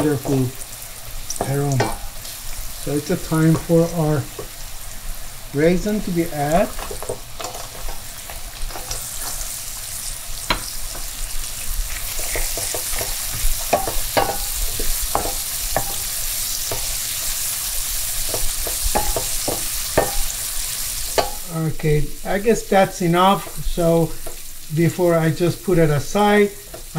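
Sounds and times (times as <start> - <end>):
onions sizzling in oil: 0.0 - 26.9
utensil scraping and tapping pan: 1.3 - 2.1, 12.2 - 16.9, 18.2 - 20.4, 21.1 - 21.5.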